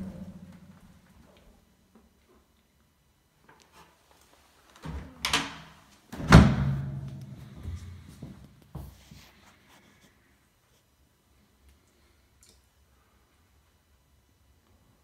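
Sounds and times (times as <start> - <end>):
wooden hatch slamming shut: 6.2 - 7.1.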